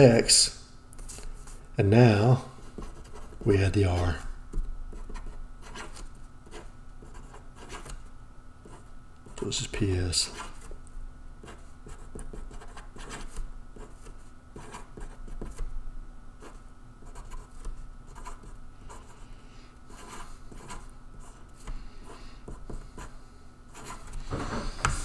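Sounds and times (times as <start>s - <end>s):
faint steady hum: 0.0s - 25.0s
marker pen scratching on paper: 2.8s - 4.2s, 4.9s - 8.0s, 10.2s - 10.7s, 11.4s - 15.7s, 16.4s - 19.2s, 19.9s - 23.1s, 23.7s - 25.0s.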